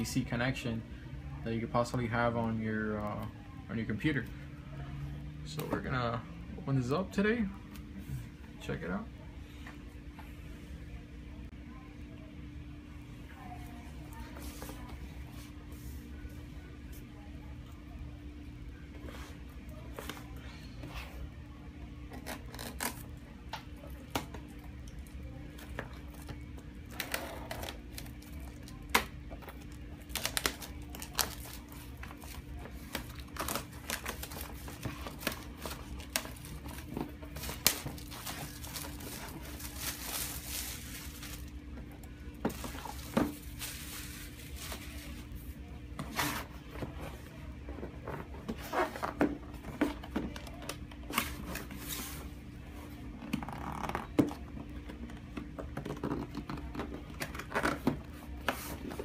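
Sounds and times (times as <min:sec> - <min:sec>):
plastic wrap crinkling and tearing: 0:26.8 - 0:41.6, 0:42.5 - 0:45.2.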